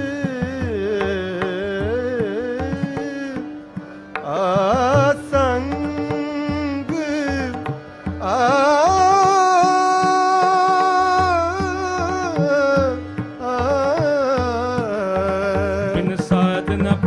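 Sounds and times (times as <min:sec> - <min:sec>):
harmonium held note: 0:00.0 - 0:17.0
tabla strokes: 0:00.0 - 0:17.0.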